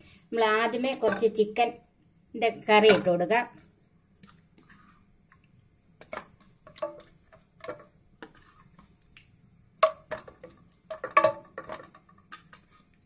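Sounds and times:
wooden spatula knocking on metal pot: 0:06.0 - 0:07.9, 0:09.8 - 0:11.9.

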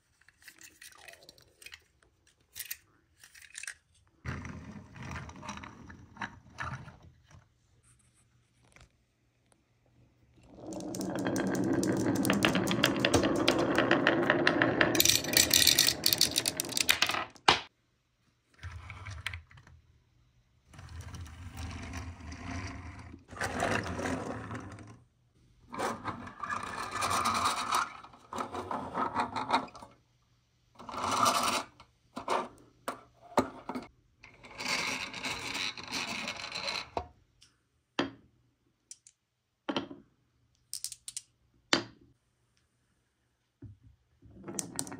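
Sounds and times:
marbles rolling down wooden slope: 0:10.4 - 0:17.5, 0:44.4 - 0:44.9.

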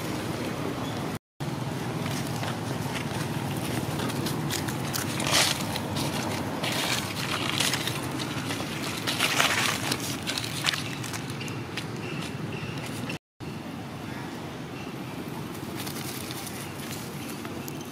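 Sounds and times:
dry leaves crunching underfoot: 0:01.9 - 0:12.2.

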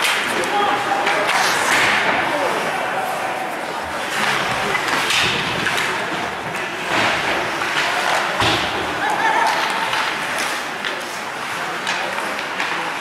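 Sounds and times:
crowd chatter: 0:00.0 - 0:13.0
puck and players hitting boards: 0:00.0 - 0:13.0.

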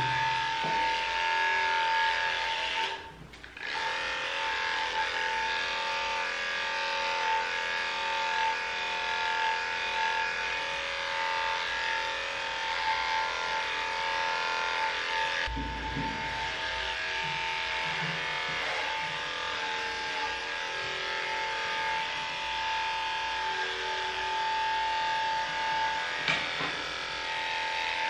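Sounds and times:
dog hair clippers buzzing: 0:00.0 - 0:28.0
low thump: 0:15.5 - 0:17.5.

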